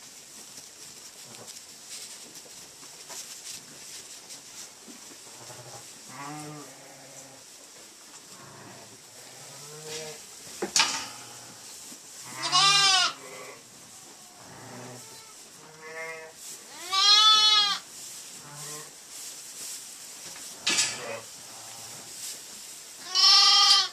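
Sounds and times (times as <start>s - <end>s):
sheep bleating: 12.3s - 13.6s, 14.4s - 17.8s, 23.0s - 23.9s.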